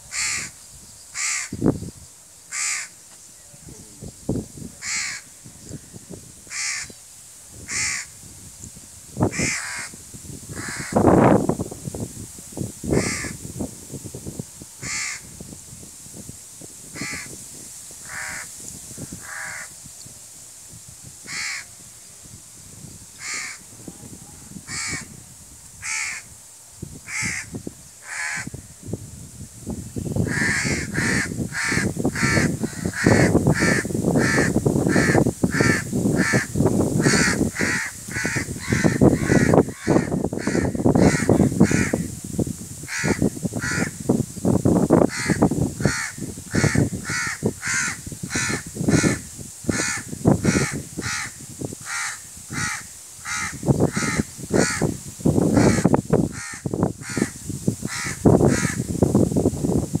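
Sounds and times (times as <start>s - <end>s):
crows cawing: 0.1s - 0.5s, 1.2s - 1.6s, 2.5s - 2.9s, 4.8s - 5.3s, 6.5s - 6.9s, 7.7s - 8.1s, 9.3s - 11.0s, 13.0s - 13.4s, 14.8s - 15.3s, 17.0s - 17.4s, 18.0s - 19.7s, 21.3s - 21.7s, 23.2s - 23.6s, 24.7s - 25.2s, 25.8s - 26.3s, 27.1s - 28.6s, 30.2s - 42.0s, 42.9s - 43.9s, 45.1s - 54.9s, 55.6s - 58.8s.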